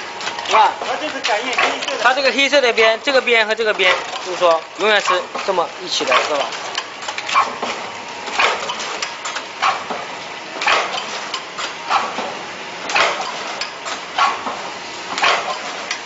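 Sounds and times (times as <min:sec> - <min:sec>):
packing machine running: 0:00.0 - 0:16.0
sharp mechanical clack: 0:00.2 - 0:02.0, 0:05.0 - 0:09.9, 0:10.6 - 0:12.3, 0:12.9 - 0:16.0.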